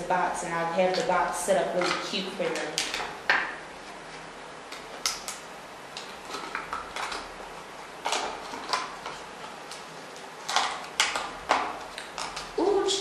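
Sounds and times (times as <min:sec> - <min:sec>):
plastic box clicking and crackling: 0:08.0 - 0:12.6.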